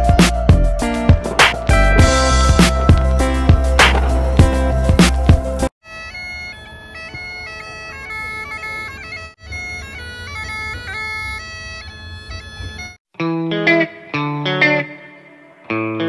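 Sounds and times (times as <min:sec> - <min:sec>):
different music: 0:00.0 - 0:05.7
bagpipe drones and melody: 0:05.8 - 0:13.0.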